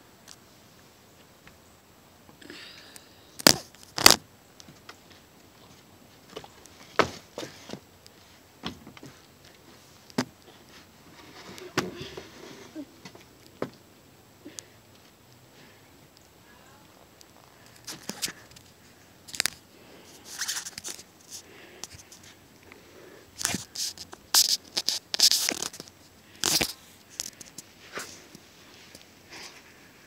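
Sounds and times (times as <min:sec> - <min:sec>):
rustling and rubbing: 0:05.1 - 0:13.3, 0:17.3 - 0:22.4, 0:23.4 - 0:30.0.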